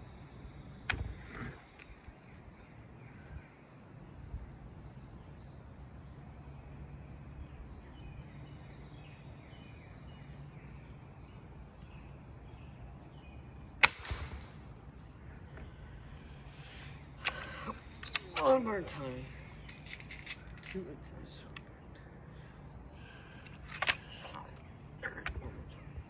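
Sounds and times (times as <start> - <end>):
birds chirping: 0.0 - 26.0
pellet rifle shot: 13.8 - 14.7.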